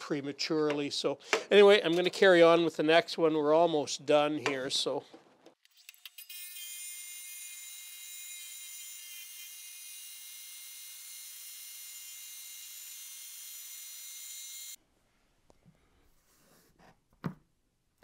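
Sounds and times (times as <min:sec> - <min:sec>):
tile saw cutting stone: 0:05.9 - 0:14.8.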